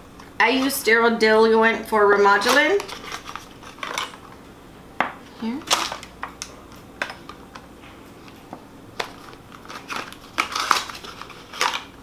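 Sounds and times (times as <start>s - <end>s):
cardboard box packaging crinkling: 9.0s - 12.0s.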